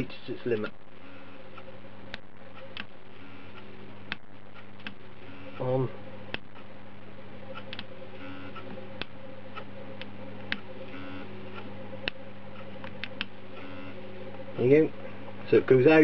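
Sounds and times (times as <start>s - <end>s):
low hum: 0.0s - 16.0s
valve motor ticking and clicking: 7.5s - 14.0s.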